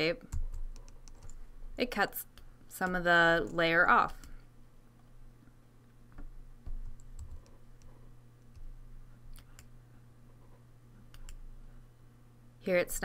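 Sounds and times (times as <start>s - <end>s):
steady low hum: 0.0s - 13.0s
computer mouse and keyboard clicks: 6.2s - 8.7s, 11.1s - 11.4s.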